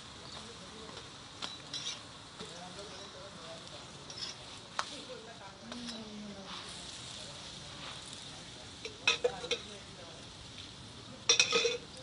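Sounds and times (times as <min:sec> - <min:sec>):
flatbread sizzling in oil: 0:00.0 - 0:12.0
metal tongs scraping griddle: 0:01.5 - 0:02.1, 0:02.8 - 0:09.8, 0:11.2 - 0:12.0.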